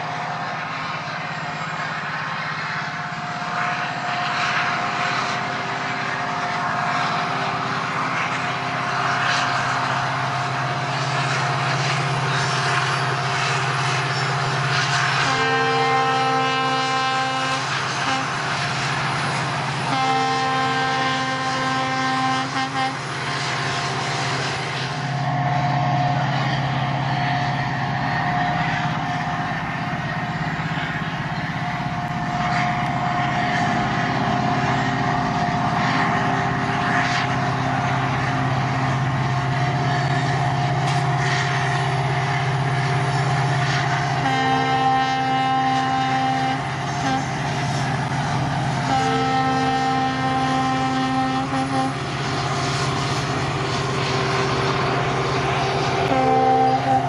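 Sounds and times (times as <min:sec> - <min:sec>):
diesel locomotive engine drone: 0:00.0 - 0:57.0
train horn: 0:15.1 - 0:18.9, 0:19.7 - 0:23.2, 0:44.1 - 0:47.4, 0:48.7 - 0:52.2, 0:56.1 - 0:57.0
train wheel clicks: 0:27.4 - 0:44.4.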